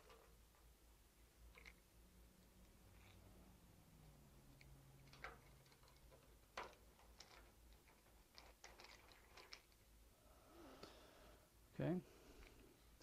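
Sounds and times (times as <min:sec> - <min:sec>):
faint clicks and taps of parts: 0:04.6 - 0:09.8.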